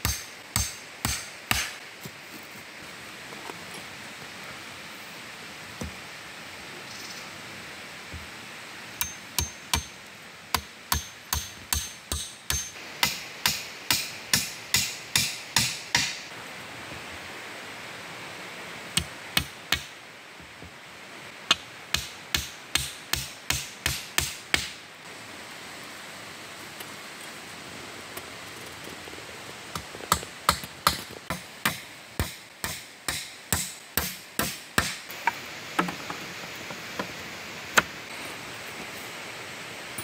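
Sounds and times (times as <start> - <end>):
hammering on wooden poles: 0.0 - 1.8, 9.0 - 16.3, 19.0 - 19.9, 21.5 - 24.8, 29.8 - 37.1.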